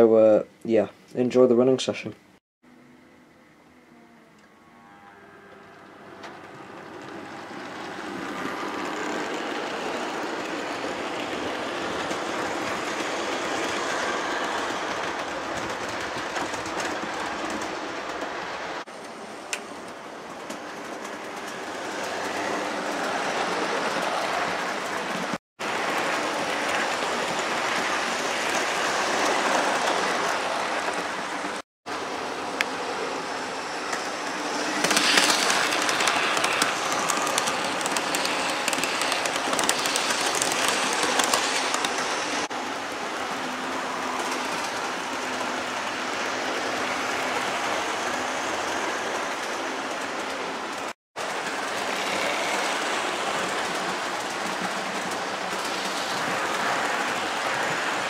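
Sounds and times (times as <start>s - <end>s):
small wheels rattling over rail joints: 5.6s - 31.6s, 33.9s - 42.5s
model train motor hum: 33.9s - 42.3s.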